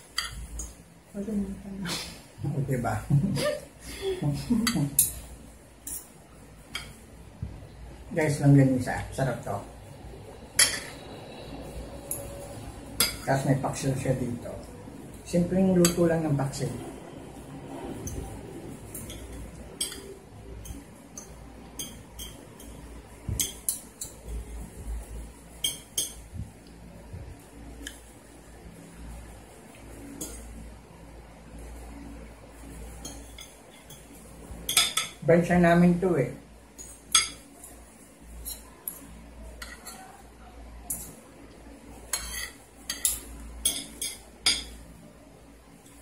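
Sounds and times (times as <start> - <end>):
cutlery clinking and scraping plates: 4.4 - 7.1, 10.5 - 11.1, 12.0 - 14.1, 18.0 - 24.4, 25.6 - 26.3, 30.1 - 30.5, 32.7 - 35.2, 36.7 - 40.3, 40.9 - 41.2, 42.0 - 44.8
spoon and fork clinking on plate: 19.0 - 24.2, 25.6 - 26.2, 42.1 - 44.8.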